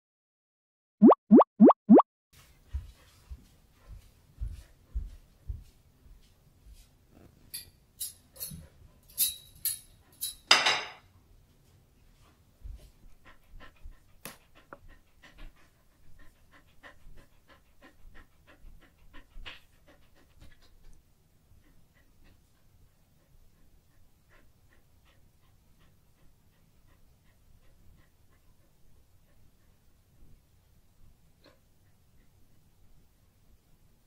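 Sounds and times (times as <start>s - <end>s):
dog panting: 2.4s - 6.9s, 12.1s - 33.2s.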